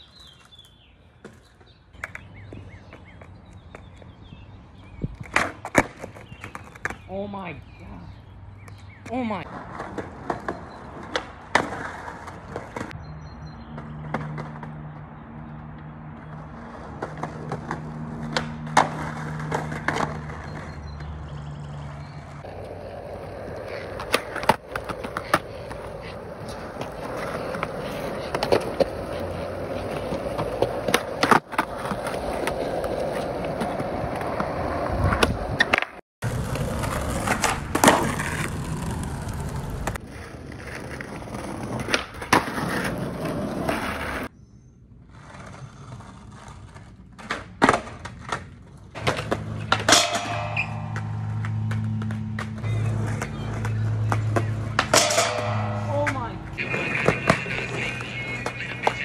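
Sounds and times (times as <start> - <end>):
skateboard wheels rolling on concrete: 0.0 - 59.0
skateboard tail popping and landing: 22.4 - 44.3, 47.1 - 55.7
skateboard sliding on metal bar: 49.4 - 51.6, 54.9 - 57.4.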